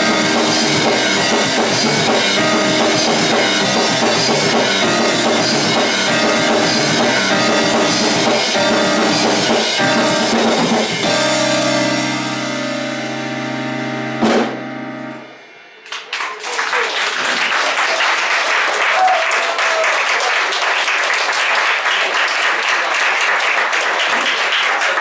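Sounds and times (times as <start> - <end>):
piano and double bass chord: 0.0 - 15.8
drum kit hit: 0.0 - 16.1
audience applause: 15.8 - 25.0.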